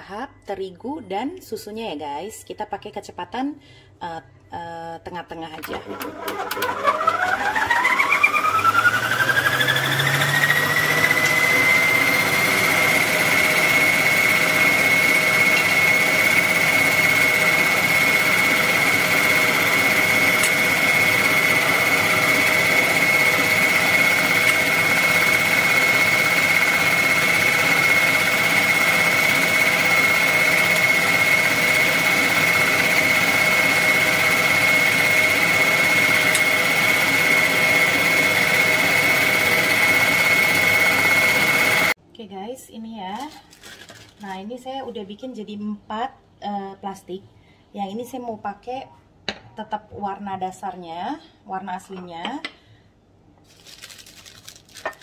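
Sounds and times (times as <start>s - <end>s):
stand mixer motor whining: 5.6s - 42.0s
wire whisk beating batter: 8.3s - 41.9s.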